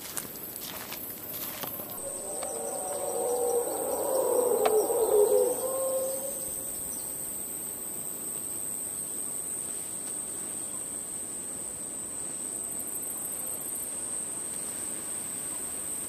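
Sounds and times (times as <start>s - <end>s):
high insect drone: 1.5s - 7.5s
wavering animal call: 1.8s - 7.4s.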